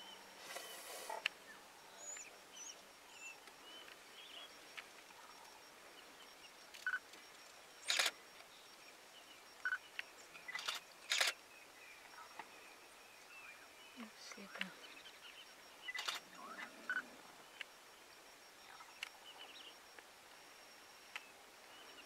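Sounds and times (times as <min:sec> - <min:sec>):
faint high chirping calls: 0:00.0 - 0:22.0
camera beep: 0:06.6 - 0:08.4, 0:09.6 - 0:11.4, 0:15.8 - 0:17.8
camera shutter clicks: 0:07.9 - 0:08.2, 0:10.6 - 0:11.4, 0:16.0 - 0:16.2.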